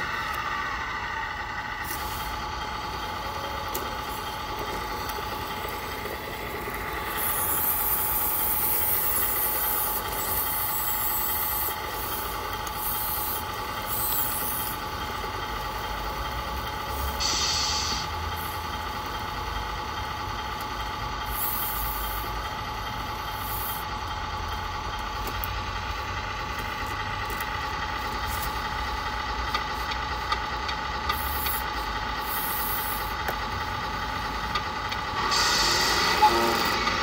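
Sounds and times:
diesel truck engine idling: 0.0 - 37.0
air-brake hisses: 1.8 - 2.4, 3.1 - 14.9, 16.9 - 18.7, 21.2 - 22.4, 23.2 - 23.9, 31.1 - 33.3, 35.2 - 37.0.

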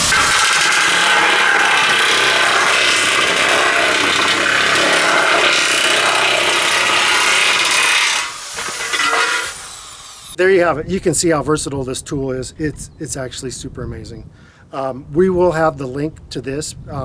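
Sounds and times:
electric nibbler cutting metal sheet: 0.0 - 10.4.

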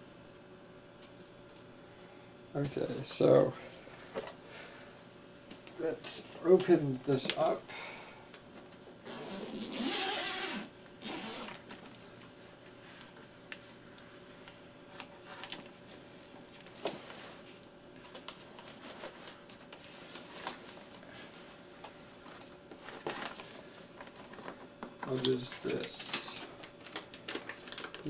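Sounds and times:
zipper pulled open: 9.1 - 11.6.

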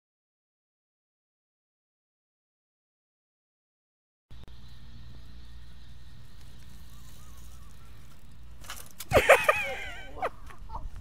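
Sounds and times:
low outdoor rumble: 4.3 - 11.0
bike and rider thudding on sand: 4.4 - 11.0.

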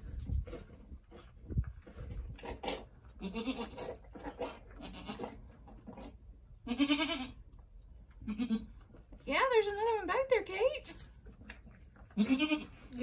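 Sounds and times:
goat bleating: 3.2 - 4.0, 4.8 - 5.4, 6.6 - 7.4, 8.2 - 8.8, 12.1 - 13.0.

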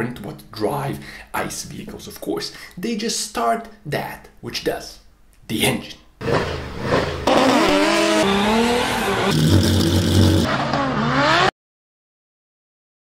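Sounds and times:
sports car engines revving: 6.2 - 11.5.

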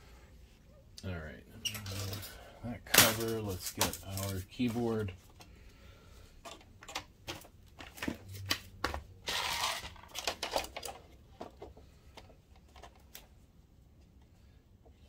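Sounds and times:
plastic parts clicking: 9.3 - 13.3.

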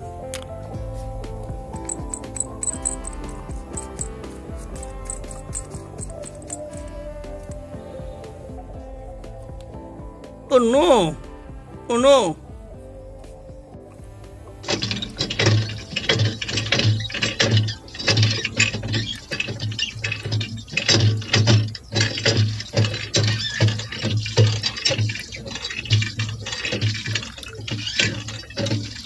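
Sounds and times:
water gushing and splashing: 14.6 - 29.0.

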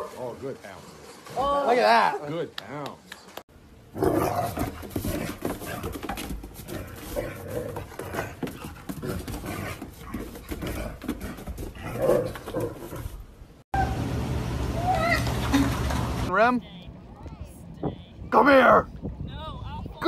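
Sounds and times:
paws clicking on wooden boards: 4.5 - 13.2.

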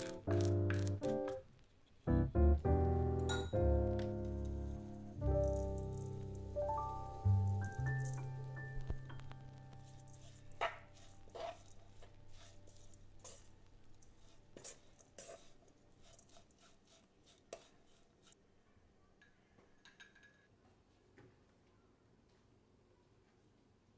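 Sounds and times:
wooden spatula stirring in a pan: 9.2 - 18.4.

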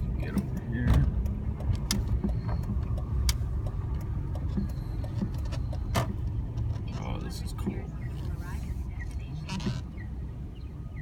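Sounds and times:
car engine and road rumble: 0.0 - 11.0
sharp clicks: 0.2 - 6.7.

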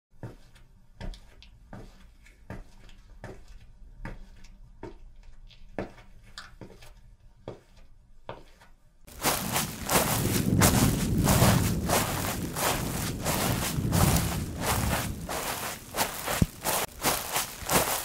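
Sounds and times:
slow footsteps: 7.5 - 18.0
loud rushing noise: 9.2 - 18.0.

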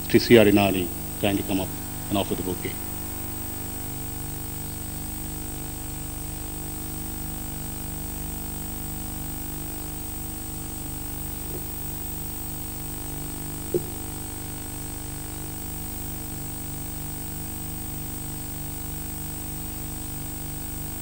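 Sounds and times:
faint low pulsing: 0.0 - 6.2
electrical hum and hiss: 0.0 - 21.0.

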